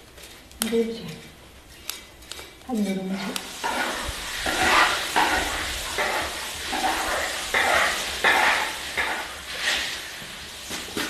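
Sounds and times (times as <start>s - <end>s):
brush scrubbing a wok: 2.7s - 11.0s.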